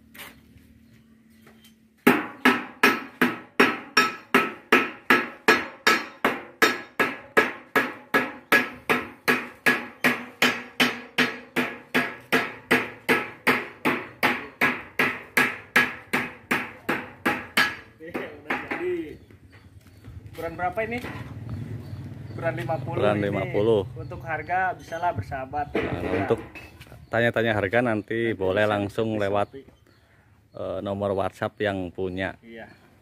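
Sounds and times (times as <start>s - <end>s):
hand hammer striking metal strip: 2.1s - 18.8s.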